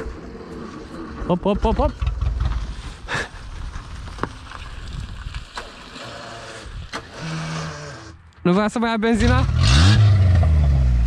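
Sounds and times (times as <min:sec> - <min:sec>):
car rolling over gravel: 0:00.0 - 0:08.4
wind on microphone: 0:02.0 - 0:05.6
car engine faltering: 0:09.1 - 0:11.0.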